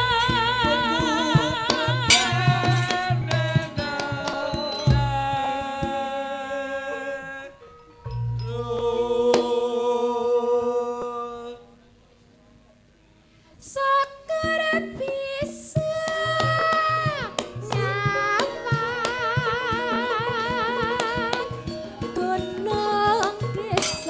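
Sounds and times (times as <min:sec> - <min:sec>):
struck percussion: 0:00.0 - 0:07.1, 0:14.5 - 0:24.0
hand drum strokes: 0:00.0 - 0:07.2
woman singing with vibrato: 0:00.0 - 0:07.6, 0:08.3 - 0:11.6, 0:13.6 - 0:24.0.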